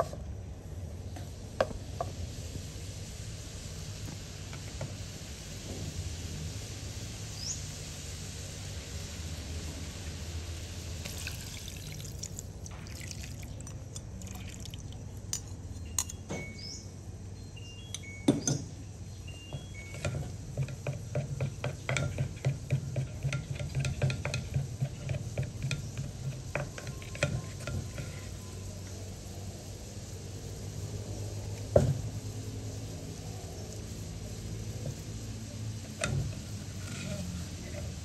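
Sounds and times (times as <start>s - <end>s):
sauce poured into hot wok: 10.0s - 15.0s
sauce bubbling and popping: 11.0s - 15.1s.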